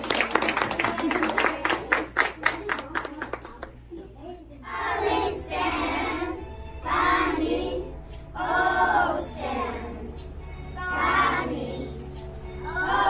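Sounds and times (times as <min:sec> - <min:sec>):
young children singing: 0:04.7 - 0:13.0.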